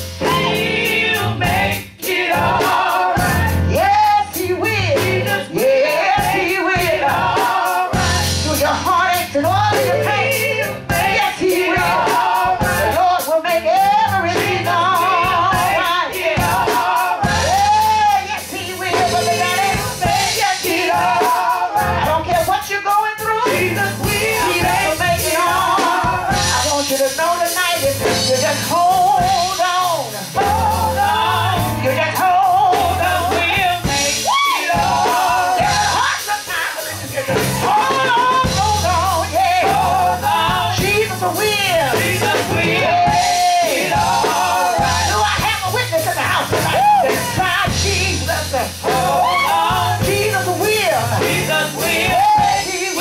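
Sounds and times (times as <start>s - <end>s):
bass line: 0.0s - 22.6s, 23.2s - 53.0s
drum kit: 0.0s - 53.0s
woman singing into a microphone: 2.6s - 53.0s
keyboard: 23.3s - 53.0s.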